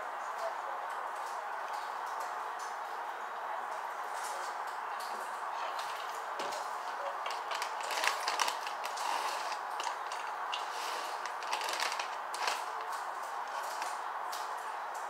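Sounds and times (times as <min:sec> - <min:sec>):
plastic snack bag crinkling: 0:05.8 - 0:14.0.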